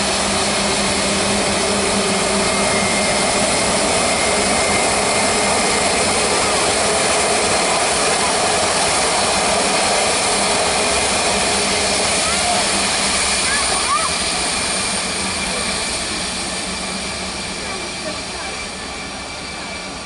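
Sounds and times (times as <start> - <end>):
jet engines humming: 0.0 - 20.0.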